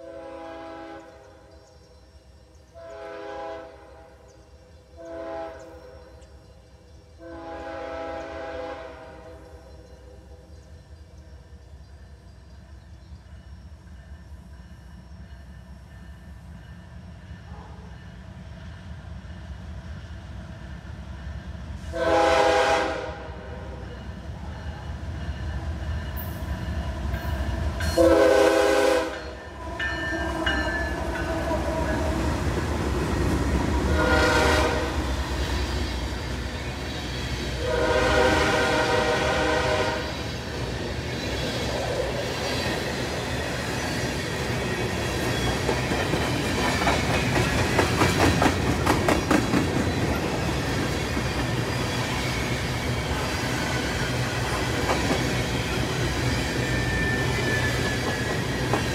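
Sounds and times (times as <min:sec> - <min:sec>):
train horn blowing: 0:00.0 - 0:01.5, 0:02.8 - 0:04.4, 0:05.0 - 0:06.2, 0:07.2 - 0:09.7, 0:21.8 - 0:24.0, 0:27.8 - 0:29.9, 0:33.8 - 0:35.2, 0:37.5 - 0:40.3
train rumbling: 0:00.0 - 0:58.9
train wheels clattering: 0:24.6 - 0:58.9.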